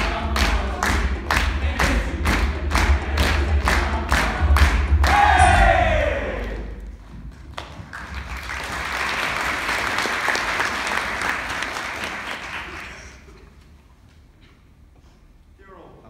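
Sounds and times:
audience applauding: 6.2s - 13.5s.

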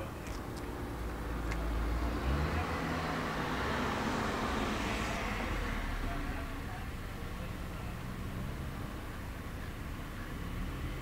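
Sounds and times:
car driving past: 1.3s - 6.6s.

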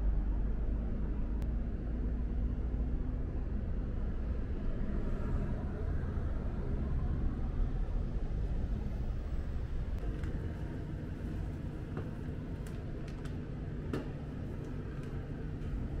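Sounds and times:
low background rumble: 0.0s - 16.0s.

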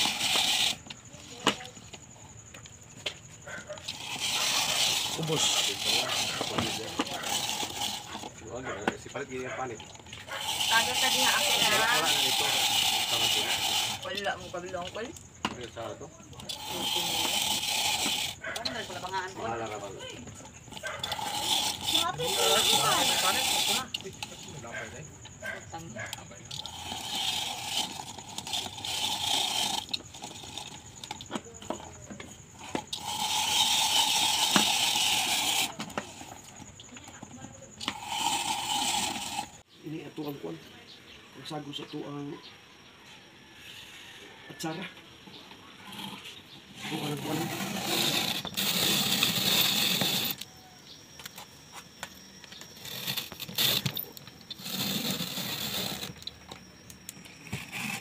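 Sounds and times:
carrot rasping on grater drum: 0.0s - 0.9s, 3.8s - 9.0s, 9.7s - 14.9s, 16.4s - 25.0s, 26.4s - 39.6s, 46.8s - 50.5s, 52.6s - 56.3s, 57.5s - 58.0s
hand-cranked shredder whirring: 0.0s - 1.6s, 3.7s - 39.7s, 45.8s - 50.6s, 51.2s - 58.0s.

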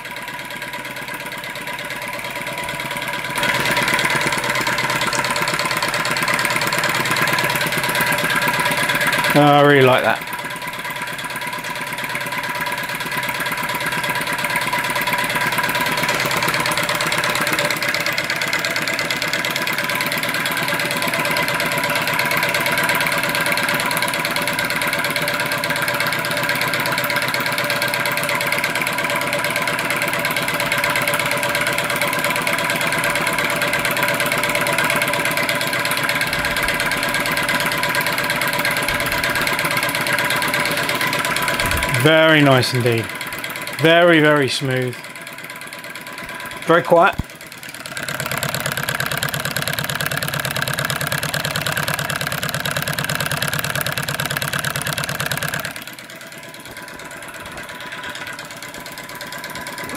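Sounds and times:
small engine mechanical patter: 0.0s - 59.9s.

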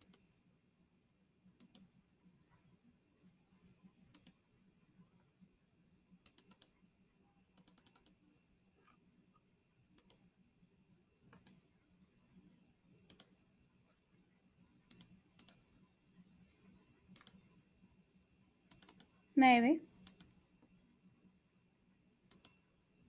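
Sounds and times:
computer mouse clicks: 0.0s - 0.2s, 1.6s - 1.9s, 4.1s - 4.4s, 6.2s - 6.8s, 7.6s - 8.2s, 10.0s - 10.2s, 11.3s - 11.6s, 13.1s - 13.4s, 14.9s - 15.7s, 17.1s - 17.5s, 18.7s - 19.2s, 20.0s - 20.4s, 22.3s - 22.6s.

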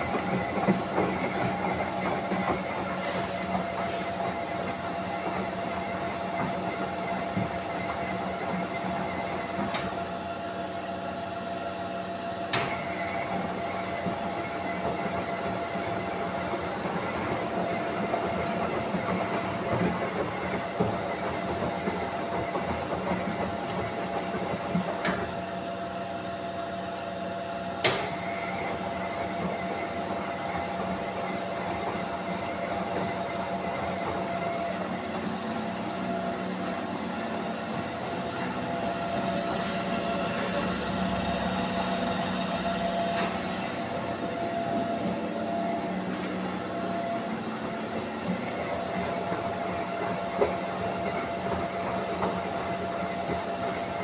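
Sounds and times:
motor hum: 0.0s - 10.6s, 27.8s - 54.0s.

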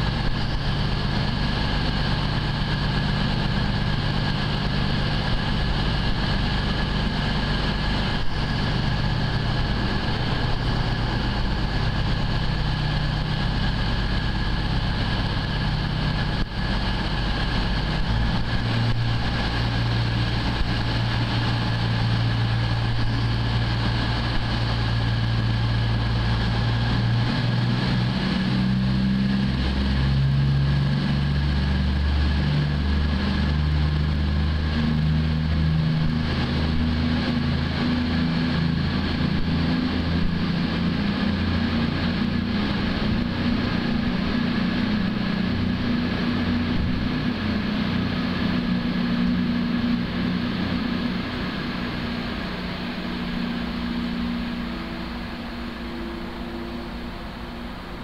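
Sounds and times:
train diesel engines idling and revving: 0.0s - 58.0s.

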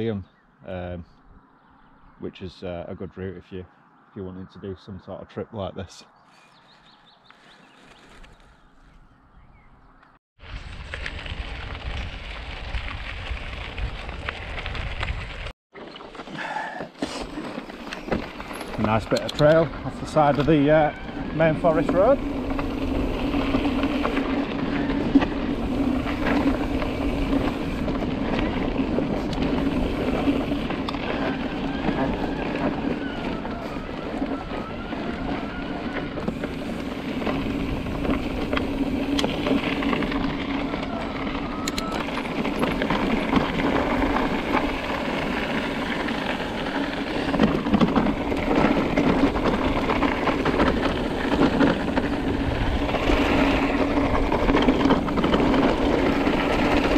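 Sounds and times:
tyre rumble on gravel: 10.4s - 56.9s
wind on microphone: 46.7s - 56.9s.

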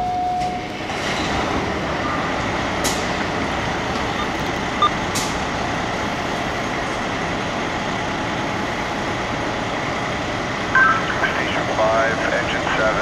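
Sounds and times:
short electronic beep: 0.0s - 0.6s, 4.1s - 5.0s
diesel engines idling: 0.0s - 13.0s.

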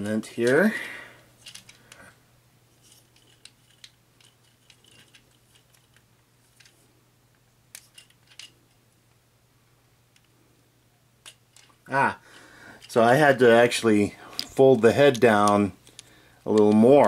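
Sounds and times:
plastic toy parts clicking: 1.4s - 1.8s, 2.9s - 6.8s, 7.7s - 8.6s, 11.2s - 11.7s.

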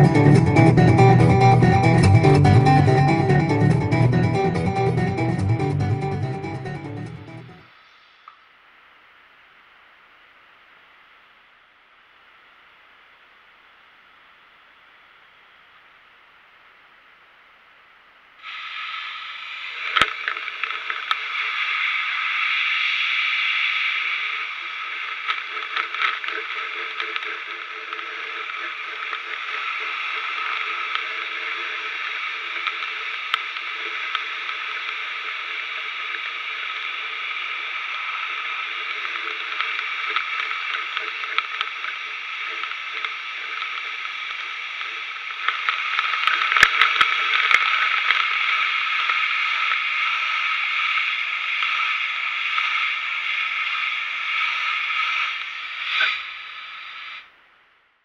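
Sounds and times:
compressed air hissing: 18.4s - 20.5s, 52.7s - 57.3s.

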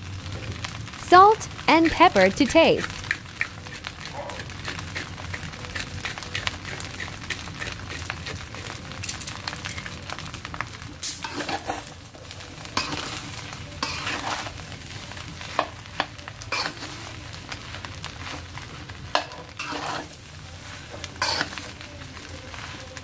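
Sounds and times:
light sizzle: 0.0s - 23.0s
spatula scraping a steel pan: 13.8s - 14.5s, 19.6s - 20.2s, 21.2s - 21.6s.

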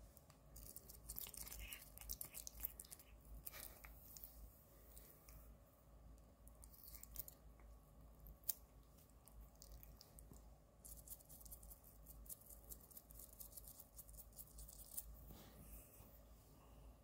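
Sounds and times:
toothbrush scraping teeth: 0.6s - 4.2s.

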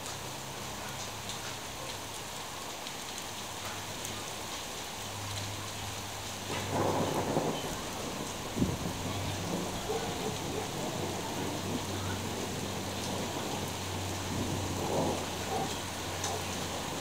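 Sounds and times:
steady rain: 0.0s - 17.0s
thunder rolling: 6.5s - 17.0s.

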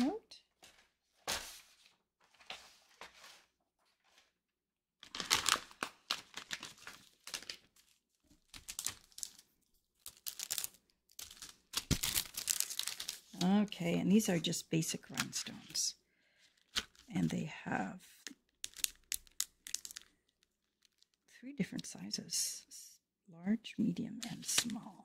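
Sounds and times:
plastic sheet crinkling and clicking: 5.0s - 13.7s, 16.4s - 17.1s, 18.2s - 21.2s, 24.2s - 25.0s.

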